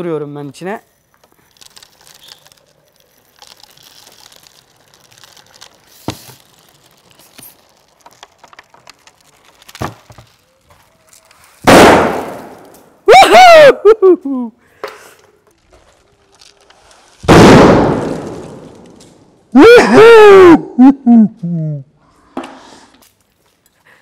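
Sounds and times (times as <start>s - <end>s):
plastic bottle bursting with a bang: 11.6s - 12.9s, 17.2s - 18.9s.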